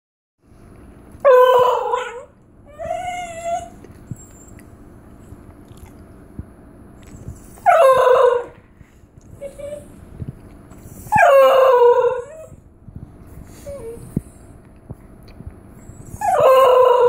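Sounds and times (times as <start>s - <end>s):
dog yodelling: 1.2s - 3.8s, 7.6s - 8.6s, 11.1s - 12.6s, 16.2s - 17.0s.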